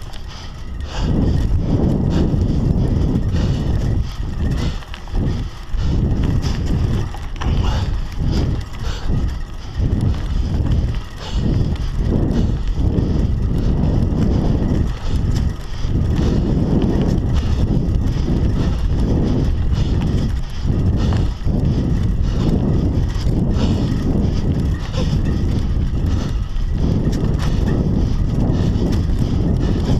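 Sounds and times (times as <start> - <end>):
bike knocks and rattles: 0.0 - 29.9
tyres on dirt trail: 0.0 - 29.9
wind buffeting microphone: 0.0 - 29.9.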